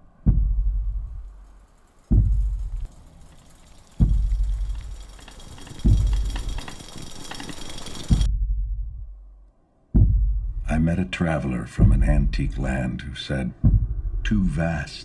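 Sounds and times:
deep bass hits: 0:00.2 - 0:01.4, 0:02.1 - 0:02.9, 0:10.0 - 0:10.9, 0:11.8 - 0:12.7, 0:13.6 - 0:14.5.

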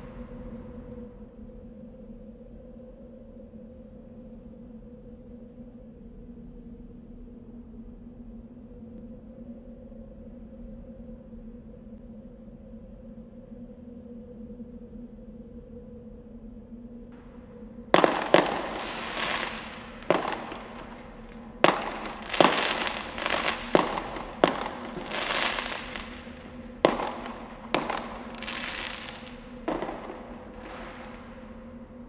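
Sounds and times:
fireworks bangs and crackling: 0:00.0 - 0:01.0, 0:17.2 - 0:32.0
steady low hum: 0:17.2 - 0:32.0.

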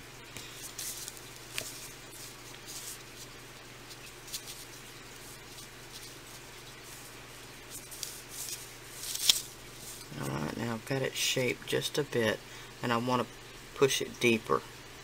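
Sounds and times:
steady low hum: 0:00.0 - 0:15.0
hands rubbing silicone putty: 0:00.6 - 0:10.4.

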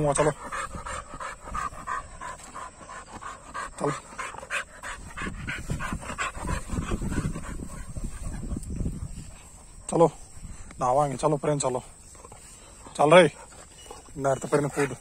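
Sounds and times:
dog panting rapidly: 0:00.0 - 0:15.0.

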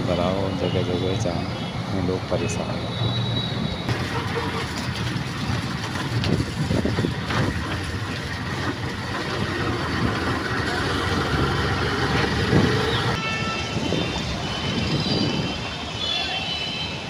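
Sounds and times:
road noise on wet road: 0:00.0 - 0:17.0
vehicle engine running: 0:03.9 - 0:13.1.

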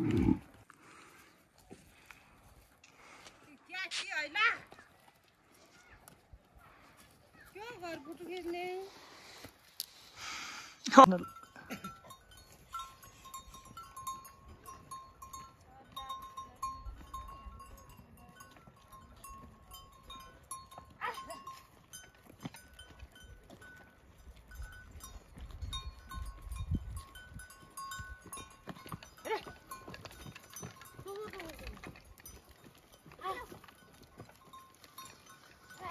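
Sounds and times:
goats moving about: 0:00.0 - 0:10.2, 0:11.2 - 0:35.9
faint thin ringing tones: 0:10.9 - 0:35.9.

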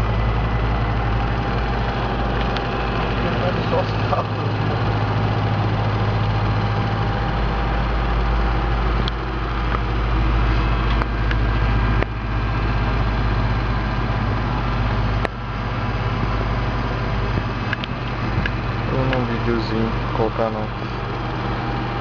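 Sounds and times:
aircraft machinery drone: 0:00.0 - 0:22.0
low hum: 0:00.0 - 0:22.0
sharp clicks: 0:17.4 - 0:19.3.

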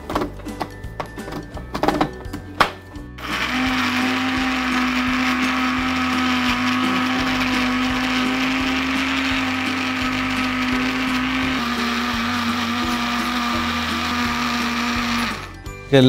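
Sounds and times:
electric mixer grinder running: 0:03.2 - 0:15.7.

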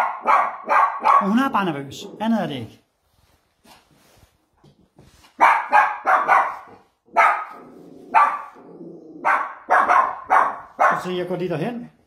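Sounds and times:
small dog barking: 0:00.0 - 0:01.4, 0:05.4 - 0:11.1
dog growling low: 0:07.6 - 0:09.3.

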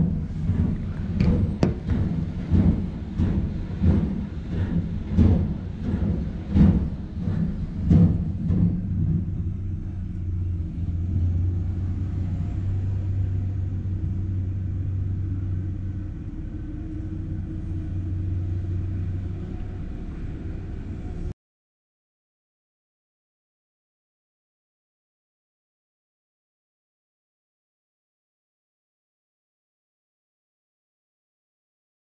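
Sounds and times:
heavy irregular knocks: 0:00.6 - 0:08.9.

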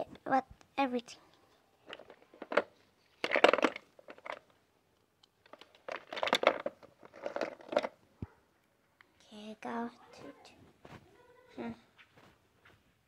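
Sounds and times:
plastic toys clattering: 0:01.8 - 0:04.6, 0:05.3 - 0:08.0.

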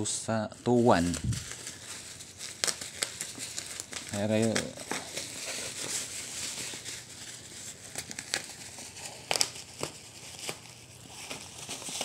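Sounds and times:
bubble wrap crinkling: 0:00.0 - 0:12.0.

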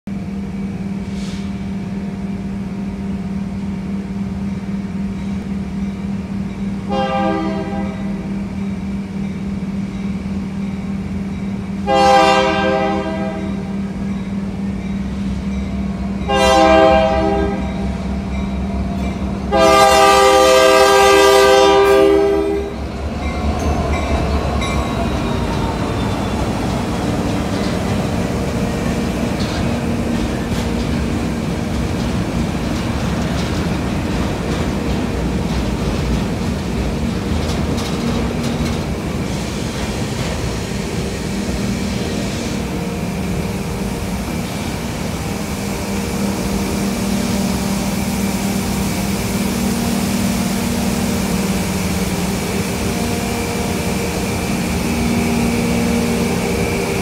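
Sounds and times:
locomotive engine rumble: 0:00.1 - 0:57.0
locomotive air horn blasts: 0:06.9 - 0:08.2, 0:11.8 - 0:13.9, 0:16.2 - 0:18.0, 0:19.5 - 0:22.9.

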